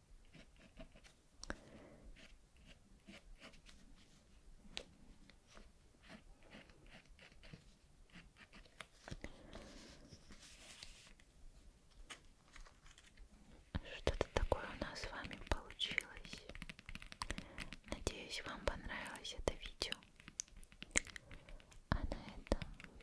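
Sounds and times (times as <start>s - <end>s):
pencil scratching on paper: 0.2s - 1.1s, 2.2s - 3.6s, 6.0s - 8.7s.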